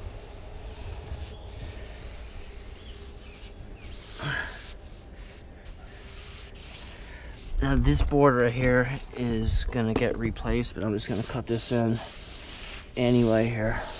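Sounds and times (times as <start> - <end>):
paintbrush rubbing on boards: 0.0 - 7.9, 11.0 - 13.9
person's voice: 13.0 - 13.9.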